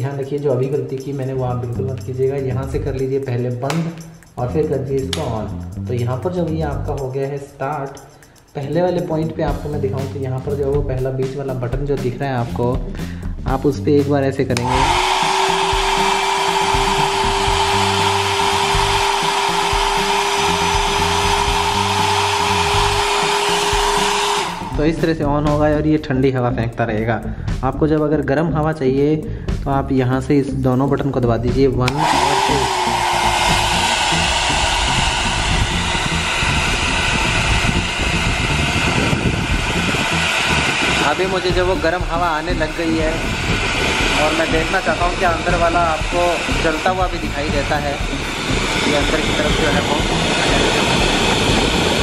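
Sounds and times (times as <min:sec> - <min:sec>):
fan motor humming: 0:14.6 - 0:24.8, 0:31.9 - 0:52.0
hair dryer blowing air: 0:14.6 - 0:24.9, 0:31.9 - 0:52.0.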